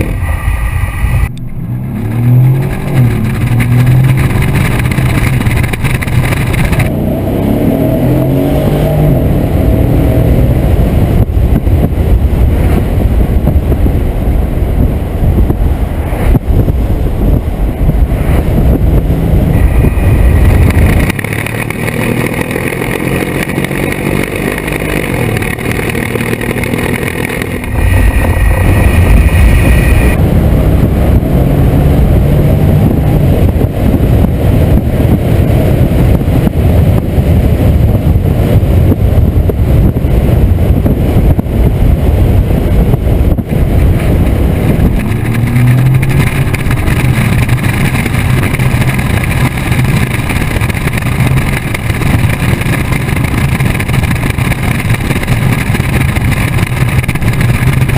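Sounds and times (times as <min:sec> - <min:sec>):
car engine and exhaust running loudly: 0:00.0 - 0:57.9.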